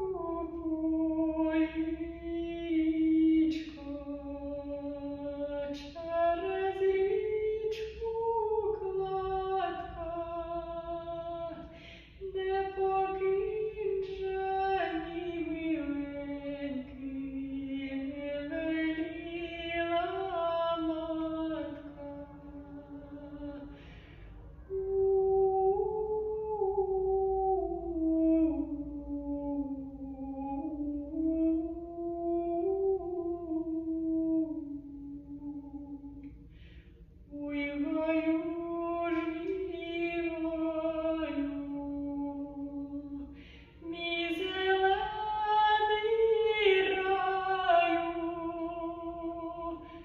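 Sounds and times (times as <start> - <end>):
woman singing unaccompanied: 0.0 - 23.9, 24.7 - 36.3, 37.3 - 50.0
singer's breaths: 11.6 - 12.2, 23.6 - 24.6, 36.2 - 37.3, 43.3 - 43.8.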